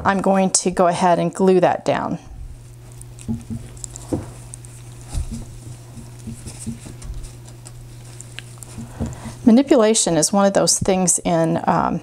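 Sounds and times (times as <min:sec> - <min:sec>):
steady low hum: 0:00.0 - 0:12.0
brush patting and rubbing: 0:02.5 - 0:10.2.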